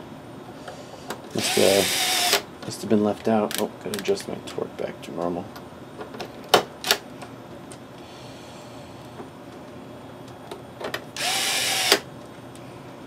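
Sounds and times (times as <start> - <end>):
electric screwdriver whine: 1.4 - 2.4, 11.2 - 12.0.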